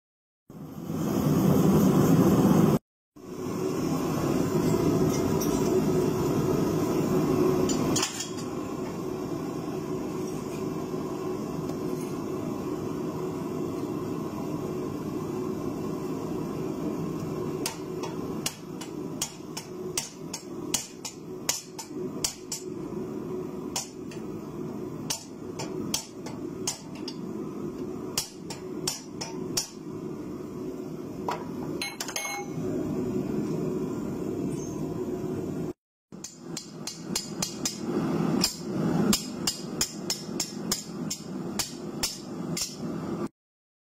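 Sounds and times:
hammer striking metal: 0:17.6 - 0:22.8, 0:25.0 - 0:27.3, 0:28.1 - 0:29.8, 0:36.2 - 0:42.9.

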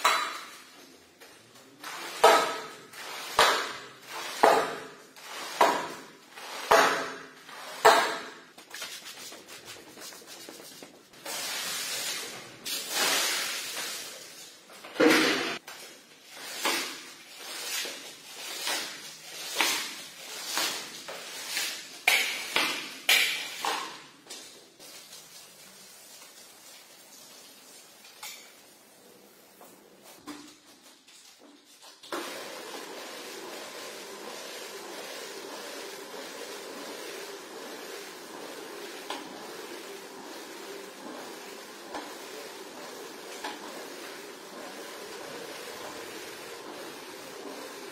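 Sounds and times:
broom swishing on wet rug: 0:01.6 - 0:14.7, 0:24.4 - 0:28.0.

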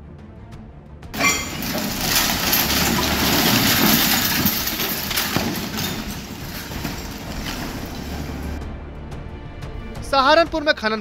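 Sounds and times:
falling masonry and rubble crashing: 0:01.2 - 0:08.6.

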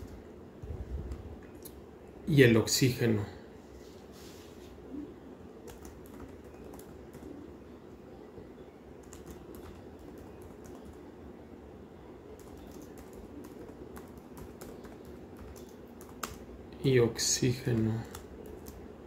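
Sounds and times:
low background hum: 0:00.0 - 0:19.0
computer keyboard typing: 0:05.6 - 0:07.4, 0:09.0 - 0:11.0, 0:12.4 - 0:16.5, 0:17.6 - 0:18.9.

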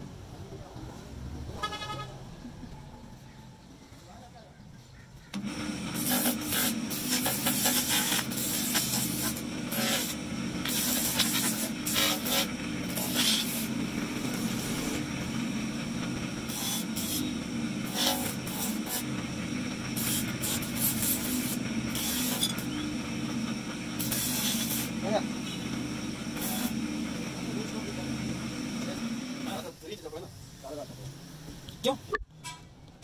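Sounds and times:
grinding disc motor humming: 0:05.3 - 0:29.9
stone grinding rasping hiss: 0:06.0 - 0:13.7, 0:16.5 - 0:19.1, 0:19.9 - 0:22.9, 0:24.0 - 0:25.7, 0:26.3 - 0:26.8.

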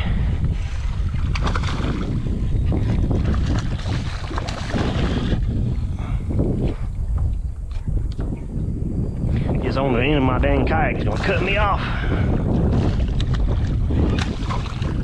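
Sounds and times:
wind buffeting microphone: 0:00.0 - 0:15.0
water splashing around kayak: 0:00.5 - 0:05.8, 0:10.9 - 0:15.0.

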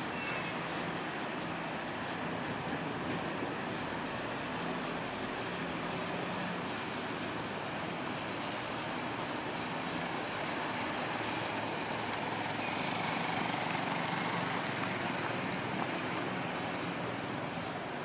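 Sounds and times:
truck engine running: 0:00.0 - 0:18.0
tyres on gravel: 0:09.2 - 0:18.0.

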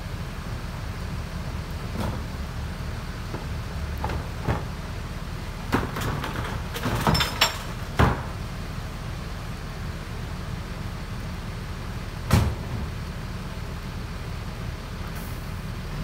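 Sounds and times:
knocks and bangs of trash: 0:05.7 - 0:08.4.

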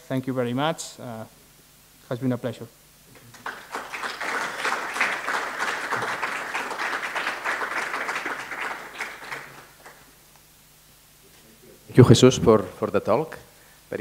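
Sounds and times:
small audience applauding: 0:03.1 - 0:10.2.

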